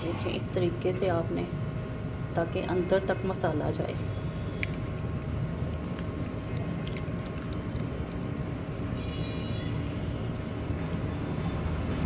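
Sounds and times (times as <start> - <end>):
faint hum: 0.0 - 12.0
hands squelching meat in marinade: 4.1 - 10.5.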